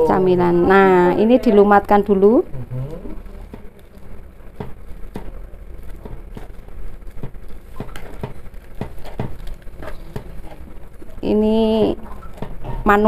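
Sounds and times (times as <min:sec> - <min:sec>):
fork mashing bananas: 0:02.9 - 0:11.2, 0:11.8 - 0:13.0.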